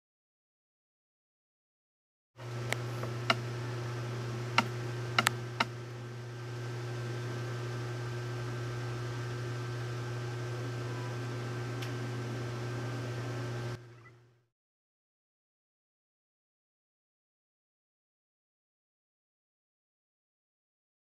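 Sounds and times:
steady low hum: 2.4 - 14.5
sharp clicks: 2.7 - 3.4, 4.6 - 5.7.

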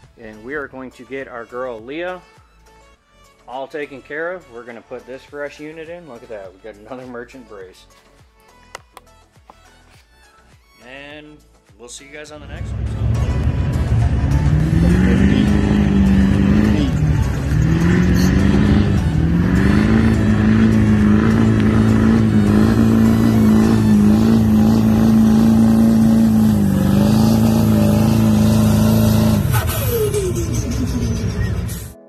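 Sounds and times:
pickup engine at high revs: 12.5 - 31.8.

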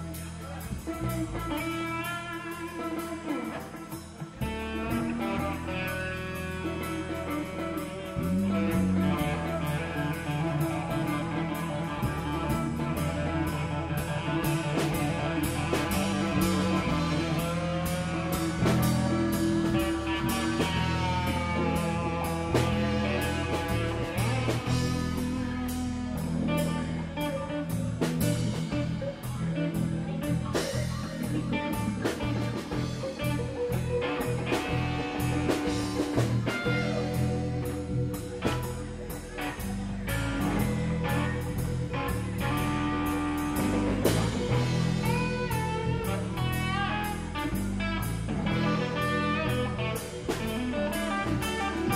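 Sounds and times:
bent guitar notes: 0.0 - 51.9
rock band playing: 0.0 - 51.9.

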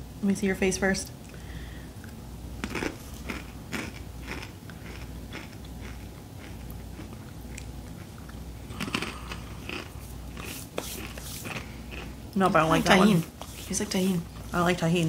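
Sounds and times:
crunchy chips being chewed: 2.0 - 12.8.

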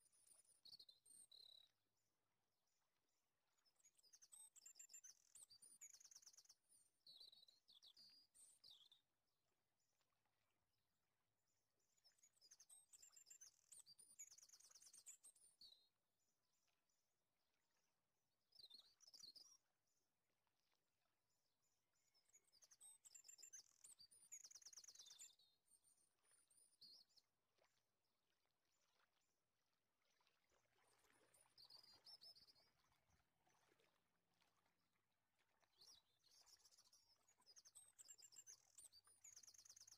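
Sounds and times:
faint bird chirping: 0.0 - 1.8, 3.6 - 9.1, 11.9 - 15.9, 18.5 - 19.7, 21.9 - 27.3, 30.1 - 33.8, 35.7 - 39.9.

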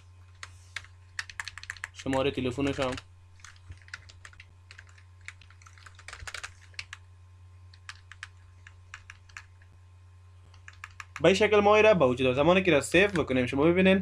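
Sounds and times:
steady low hum: 0.0 - 14.0
keyboard typing: 0.4 - 7.0, 7.7 - 9.7, 10.5 - 11.4.

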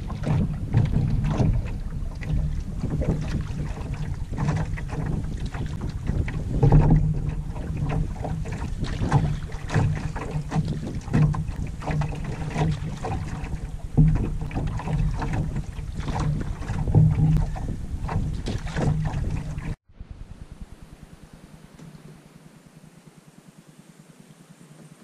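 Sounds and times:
water lapping against canoe hull: 0.0 - 19.8
wind buffeting microphone: 0.0 - 22.2.

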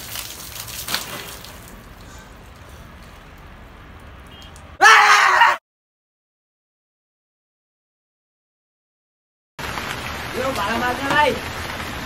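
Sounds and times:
water splashing on concrete: 0.0 - 4.8, 9.6 - 12.0.

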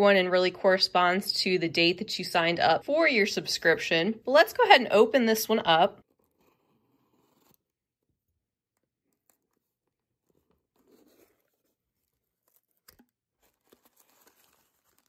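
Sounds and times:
cardboard rustling: 9.1 - 15.0.

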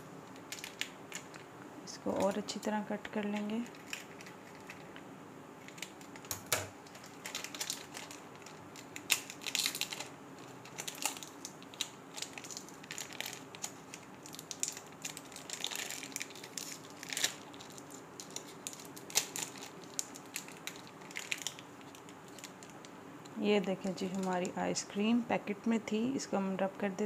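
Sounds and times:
plastic wrapper crinkling: 0.3 - 1.5, 3.2 - 5.0, 5.6 - 24.6
scissors cutting wrapper: 5.6 - 22.7.

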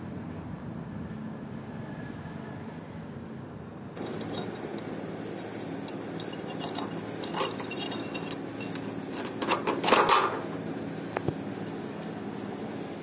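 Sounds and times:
low background hum: 0.0 - 13.0
metal padlock clinks and clicks: 4.0 - 4.9, 5.5 - 10.4.

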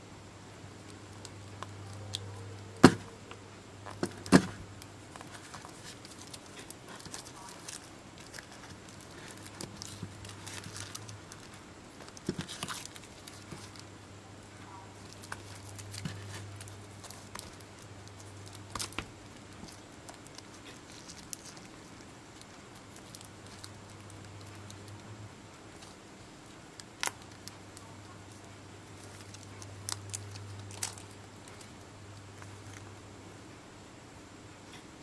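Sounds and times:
steady low hum: 0.0 - 35.0
foil pouch crinkling: 3.9 - 13.9, 14.9 - 25.0, 26.8 - 32.9.

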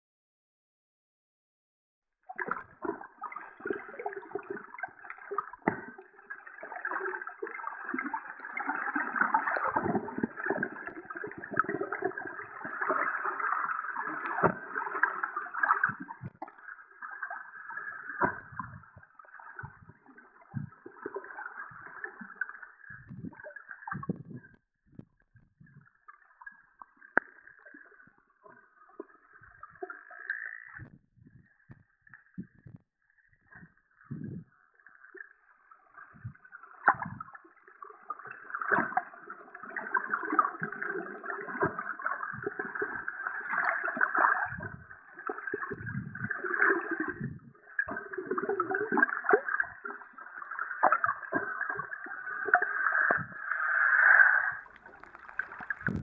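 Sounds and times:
low thumps of water movement: 18.1 - 26.5, 54.6 - 56.0.

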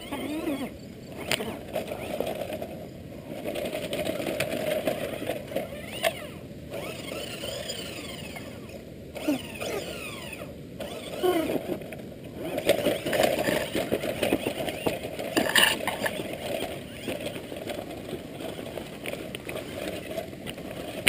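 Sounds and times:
toy truck electric motor whining: 0.0 - 21.0
tyres crunching over rocks: 11.7 - 21.0.

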